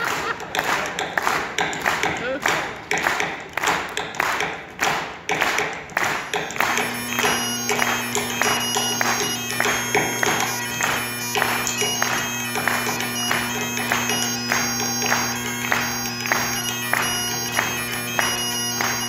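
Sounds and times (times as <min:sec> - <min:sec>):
steady beat of sharp taps: 0:00.0 - 0:19.0
bagpipes playing: 0:06.0 - 0:19.0.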